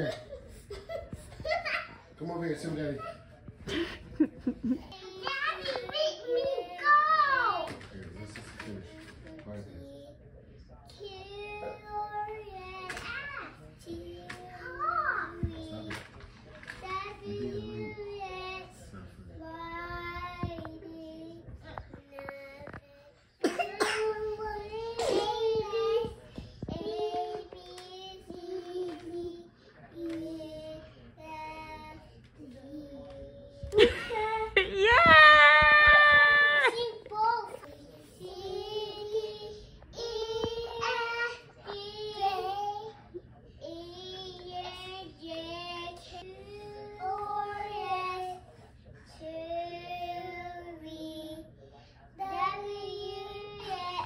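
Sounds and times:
young child singing: 11.0 - 33.8, 36.6 - 43.0, 52.2 - 54.0.

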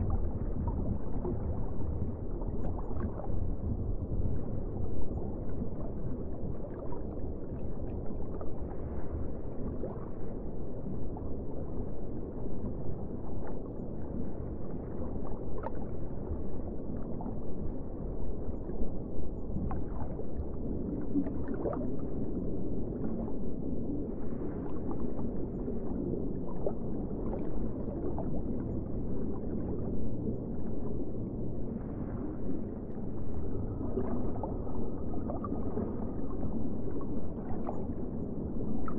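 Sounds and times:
underwater wash of water: 0.0 - 18.8, 19.4 - 38.9.

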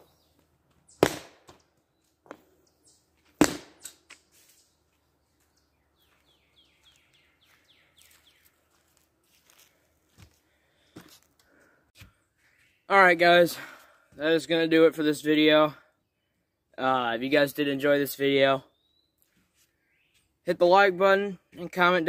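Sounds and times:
bird singing: 0.0 - 3.2, 3.8 - 8.9, 12.2 - 13.3, 15.2 - 20.8.

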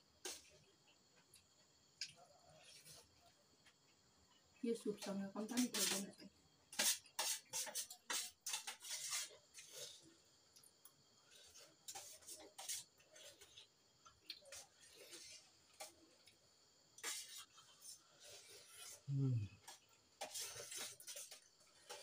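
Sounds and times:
spoons scraping steel plates: 6.7 - 9.7.

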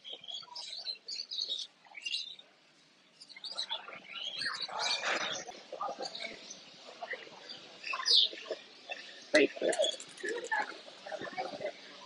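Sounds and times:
caged birds chirping: 0.0 - 12.0.

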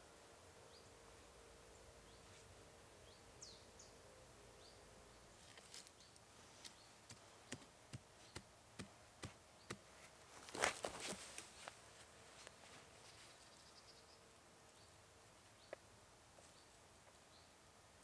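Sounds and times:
hand tool chopping into soil: 7.0 - 9.9
faint bird chirps: 13.0 - 17.6.

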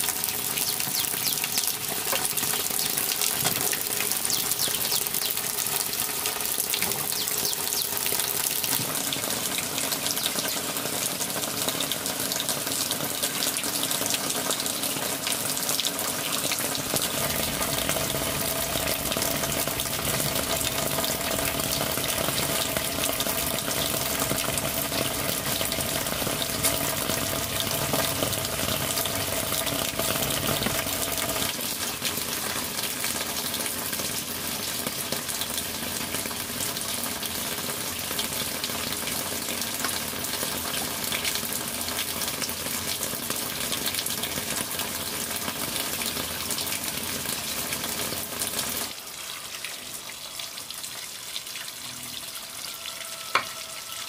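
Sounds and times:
fat sizzling and crackling: 16.6 - 31.6.

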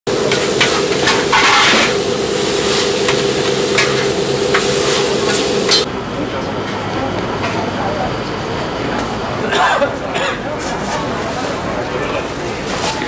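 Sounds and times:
food sizzling on griddle: 0.1 - 5.9
steady hum: 0.1 - 10.3
metal spatula scraping griddle: 0.2 - 5.9.

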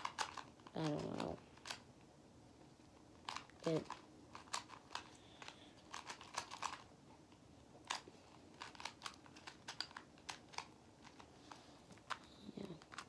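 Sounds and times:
puzzle cube layers clicking: 0.0 - 1.8, 3.2 - 6.8, 7.8 - 11.3.

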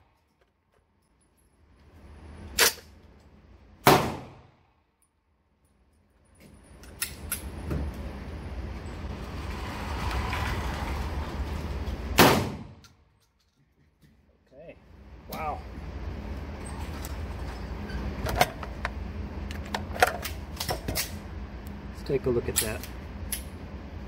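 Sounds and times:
shotgun shot echoing: 3.8 - 4.5, 12.2 - 12.7.

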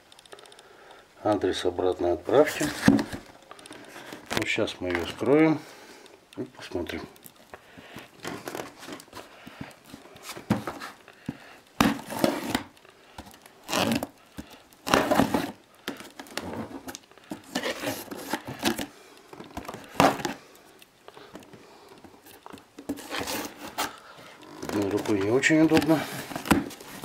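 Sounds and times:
plastic film crinkling and ripping: 11.8 - 20.4, 22.2 - 27.0
knife slitting packing tape: 13.6 - 14.2.

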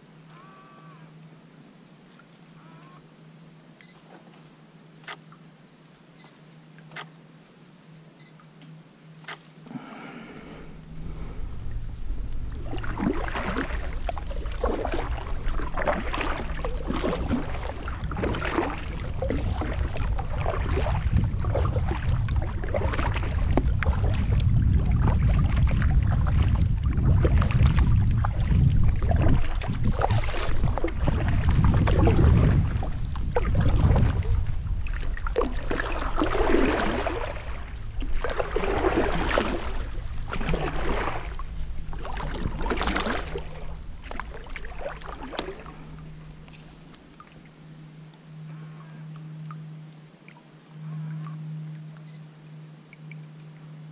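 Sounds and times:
kayak paddle splashing: 9.7 - 52.2
low rumble: 10.2 - 52.2.

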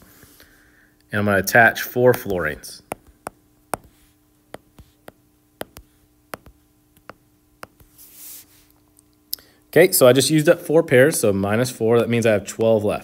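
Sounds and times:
faint steady hum: 0.0 - 13.0
stylus tapping on glass screen: 2.9 - 7.8.

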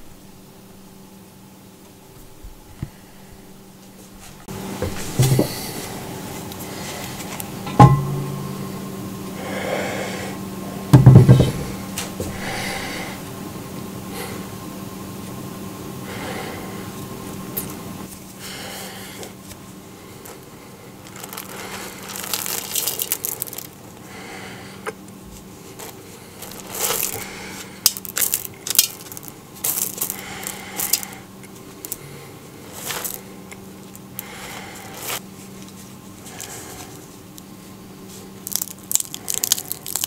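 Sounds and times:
low steady hum: 0.0 - 40.0
pebbles clinking in a pot: 21.0 - 23.9, 25.8 - 31.2, 32.7 - 33.3, 38.4 - 40.0.

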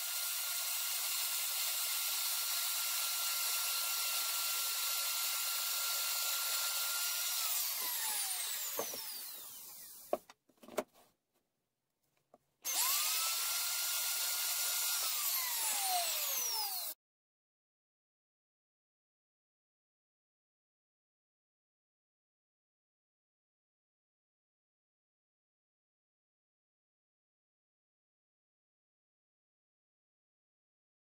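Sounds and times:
electric router whining: 0.0 - 10.3, 12.7 - 17.0.

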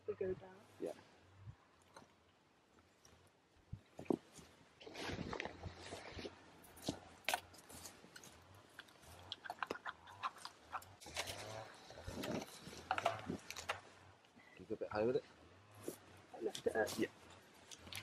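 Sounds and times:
grass rustling: 0.6 - 14.4, 15.0 - 18.0
small clicks of wire on stone: 16.5 - 18.0.

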